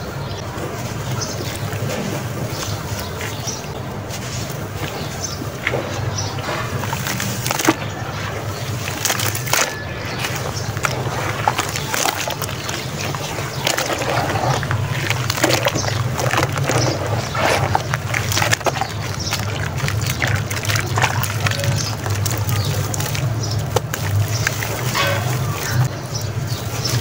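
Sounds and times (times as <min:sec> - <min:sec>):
water sloshing and splashing: 0:00.0 - 0:27.0
wet sand pouring into water: 0:08.5 - 0:25.9
crackles and pops: 0:08.6 - 0:25.9.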